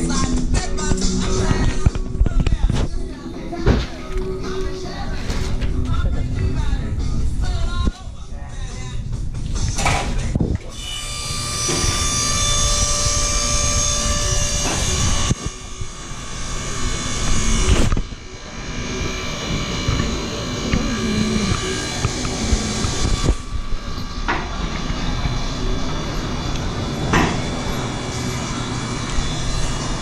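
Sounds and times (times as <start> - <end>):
high-pitched machine whine: 10.7 - 30.0.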